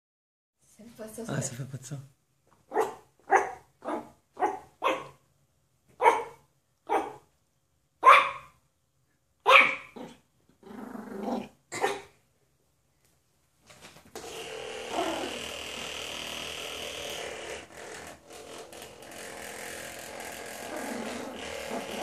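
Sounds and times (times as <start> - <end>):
small dog barking: 2.7 - 5.2, 6.0 - 7.3, 8.0 - 8.6, 9.4 - 10.1, 11.7 - 12.2.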